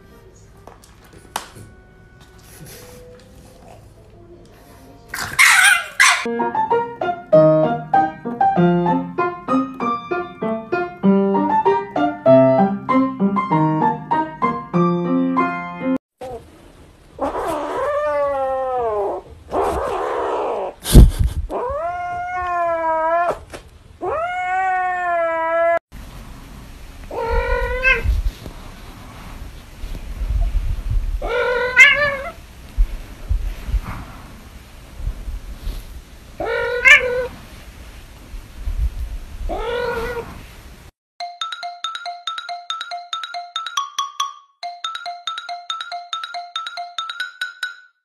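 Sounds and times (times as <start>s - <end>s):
cat yowling: 5.4s - 6.3s, 17.2s - 20.8s, 21.5s - 25.8s, 27.1s - 28.0s, 31.2s - 32.4s, 36.4s - 37.3s, 39.5s - 40.3s.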